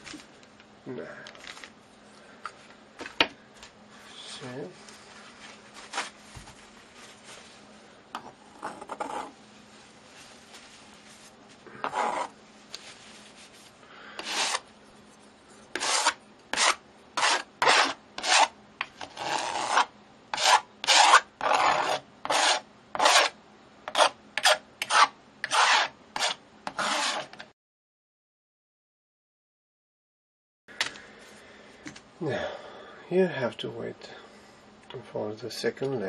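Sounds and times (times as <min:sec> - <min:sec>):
palette knife scraping canvas: 0:08.6 - 0:09.4, 0:11.8 - 0:12.4, 0:14.2 - 0:27.4.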